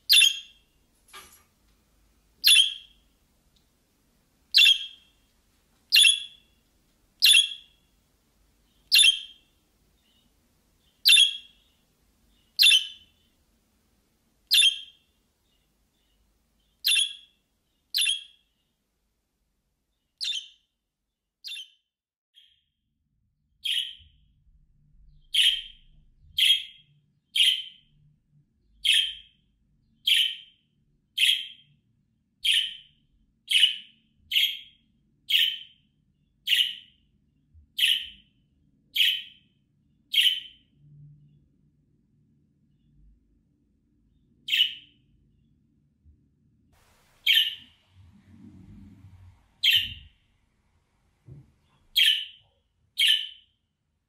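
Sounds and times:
budgerigar chirping: 0.1 - 0.6, 2.4 - 3.0, 4.5 - 5.1, 5.9 - 6.5, 7.2 - 7.8, 8.8 - 10.2, 10.9 - 13.3, 14.5 - 15.0, 16.7 - 18.4, 20.2 - 20.6, 21.4 - 21.8, 23.6 - 24.0, 25.3 - 25.8, 26.4 - 26.8, 27.4 - 27.8, 28.8 - 29.3, 30.0 - 30.5, 31.2 - 31.6, 32.4 - 32.9, 33.5 - 35.8, 36.5 - 36.9, 37.8 - 38.2, 39.0 - 39.4, 40.1 - 40.6, 44.5 - 44.9, 47.2 - 47.7, 49.6 - 50.1, 51.9 - 52.4, 53.0 - 53.5.

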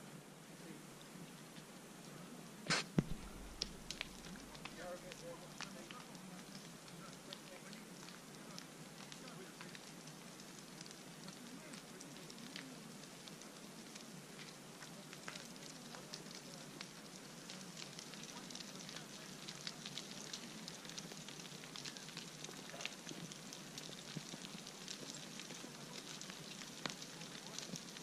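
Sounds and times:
hiss: 2.7 - 4.4
small stones clattering: 3.0 - 4.8.

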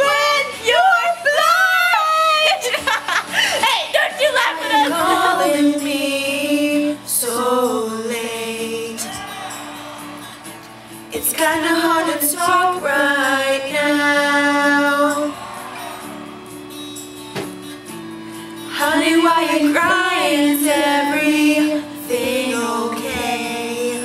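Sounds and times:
women singing into microphones: 0.0 - 9.2, 11.1 - 15.4, 18.7 - 24.0
backing music: 0.0 - 24.0.

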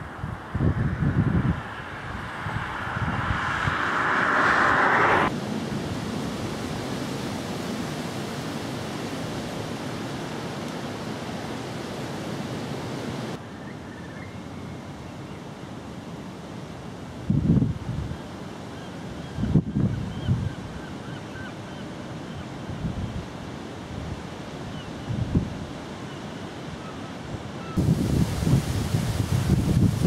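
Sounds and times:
wind on microphone: 0.0 - 9.6, 17.2 - 18.2, 19.2 - 20.8, 25.0 - 25.7, 27.7 - 30.0.

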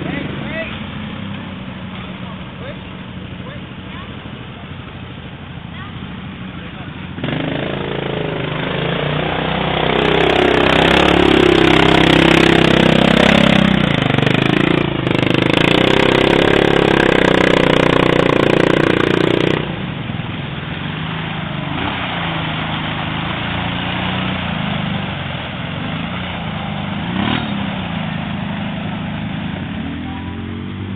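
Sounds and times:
quad engine revving: 5.6 - 20.2, 20.9 - 30.9.

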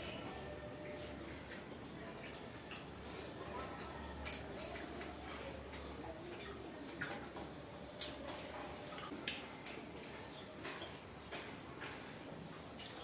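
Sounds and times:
small clicks and taps on plates: 3.7 - 12.1.

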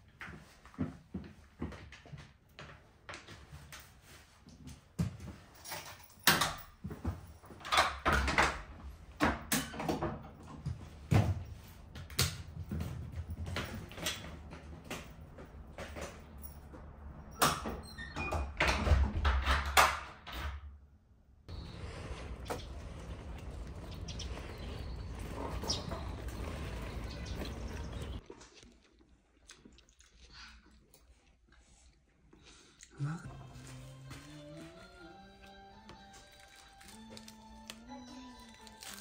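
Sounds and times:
stroller wheels rolling on tiles: 11.8 - 16.5, 21.5 - 28.2
front door shutting: 21.5 - 28.2
stroller clicks and rattles: 22.6 - 28.2.

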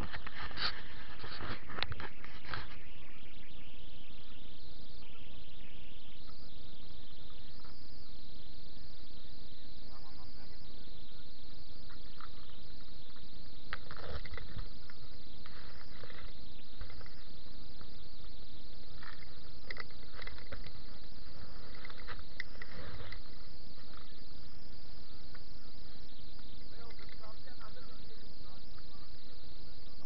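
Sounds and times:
steady high hiss: 0.0 - 30.0
faint muffled voices: 8.8 - 13.0, 25.1 - 30.0.

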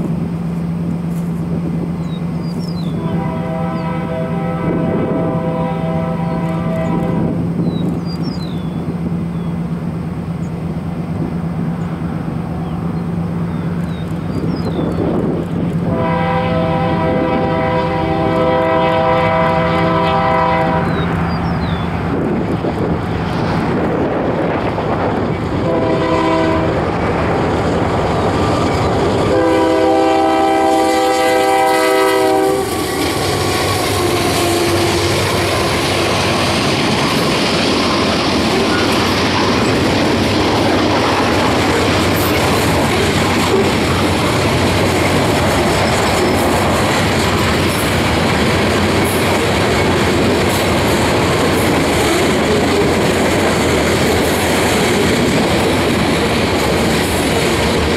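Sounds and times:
locomotive air horn: 3.0 - 7.4, 15.9 - 21.1, 25.6 - 26.8, 29.2 - 36.3
train wheels clattering on rails: 10.4 - 57.9.

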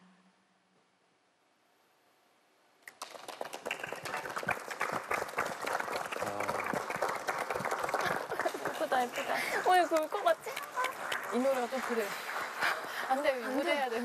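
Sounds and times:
audience applause: 2.9 - 14.0.

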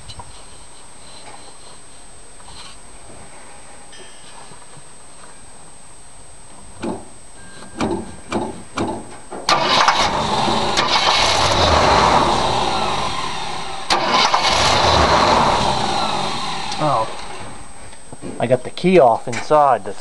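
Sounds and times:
starter motor cranking: 9.5 - 17.4.

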